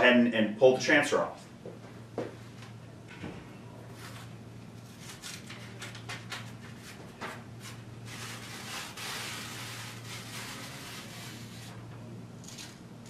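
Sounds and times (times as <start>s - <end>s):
steady low hum: 0.0s - 13.0s
paper sheet crackling and rustling: 4.0s - 11.7s.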